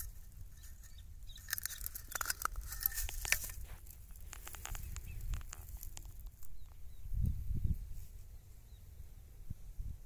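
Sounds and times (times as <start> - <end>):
dry grass and shells crackling: 0.0 - 6.9.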